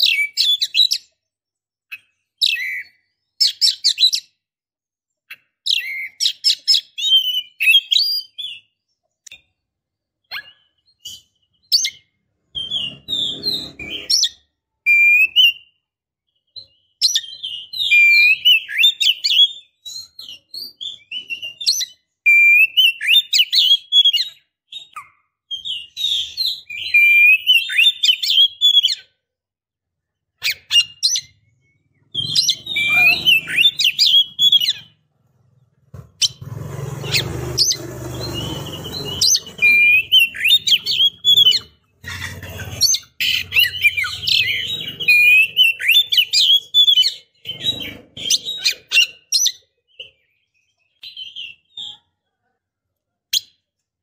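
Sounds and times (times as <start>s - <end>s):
bird chirping and whistling: 0.0s - 1.1s, 1.9s - 4.3s, 5.3s - 8.7s, 10.2s - 15.8s, 16.5s - 29.0s, 30.4s - 35.0s, 36.2s - 50.2s, 50.9s - 51.9s
rustling rumbling noise: 35.0s - 40.0s.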